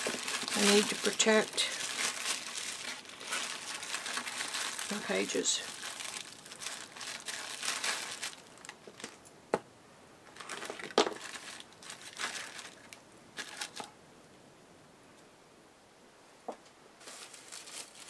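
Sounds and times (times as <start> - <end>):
paper crinkling: 0.0 - 9.2, 10.3 - 13.9, 17.0 - 18.0.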